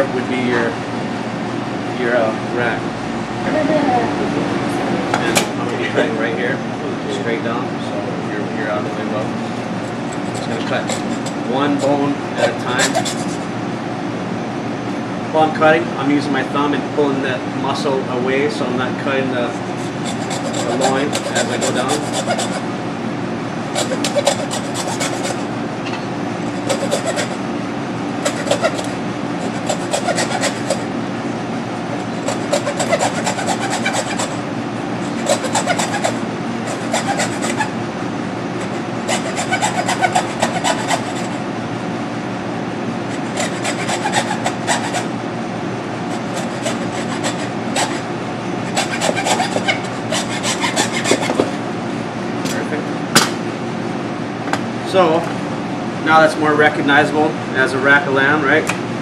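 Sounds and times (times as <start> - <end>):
blade sawing through bones: 10.1 - 13.5, 19.5 - 22.7, 23.8 - 25.5, 26.5 - 27.4, 28.2 - 30.9, 32.0 - 34.4, 35.0 - 37.8, 38.6 - 41.4, 43.1 - 45.1, 46.1 - 51.6.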